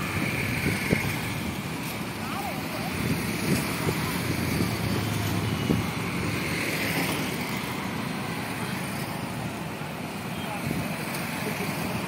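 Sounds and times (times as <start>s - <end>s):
wind rumbling on microphone: 0.0s - 6.5s
engine hum: 0.0s - 12.0s
road traffic noise: 0.0s - 12.0s.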